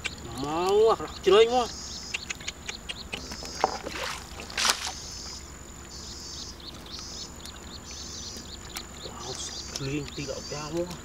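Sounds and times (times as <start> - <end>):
high chirring: 0.0 - 10.8
water splashing: 3.6 - 5.0.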